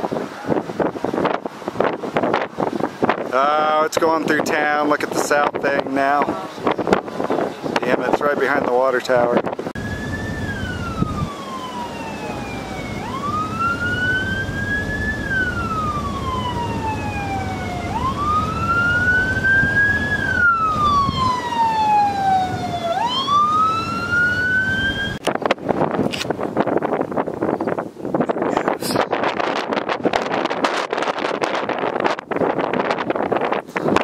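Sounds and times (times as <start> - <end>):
low wind noise: 0.0 - 34.0
siren wailing: 9.8 - 25.2.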